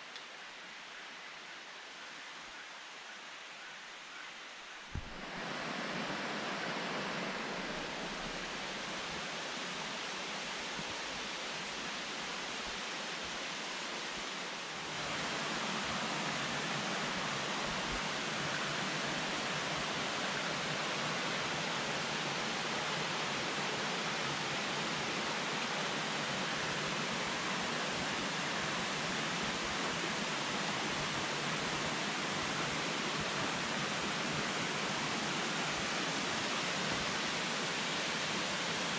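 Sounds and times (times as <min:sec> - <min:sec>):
stream rushing over rocks: 0:04.9 - 0:38.9.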